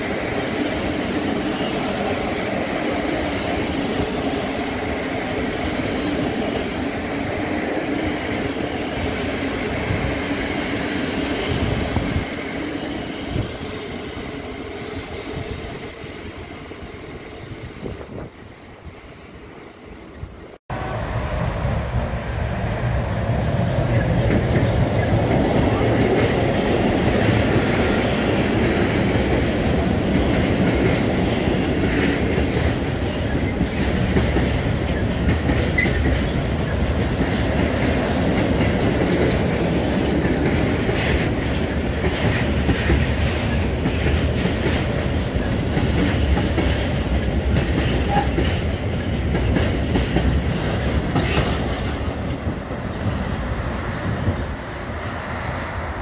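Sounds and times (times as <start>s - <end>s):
steel wheels rumbling on rails: 0.0s - 56.0s
wheels clicking over rail joints: 23.7s - 53.4s.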